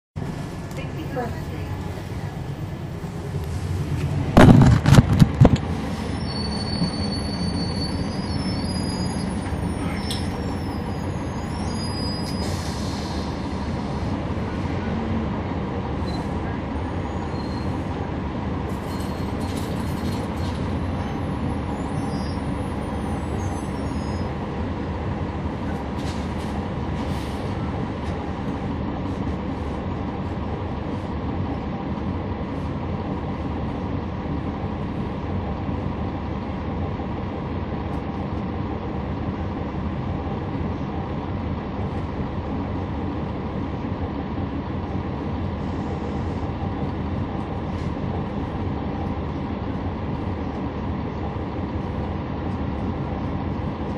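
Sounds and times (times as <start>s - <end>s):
bus diesel engine running: 0.2s - 53.9s
road noise rumble: 0.2s - 53.9s
loud thumps: 4.3s - 5.6s.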